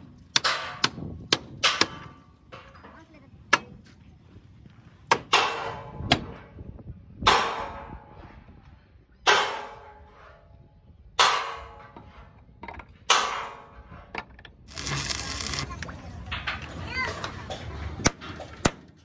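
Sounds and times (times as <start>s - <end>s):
hammer striking steel: 0.3s - 2.8s, 5.1s - 6.4s, 9.2s - 10.2s, 11.2s - 12.2s, 13.1s - 14.0s.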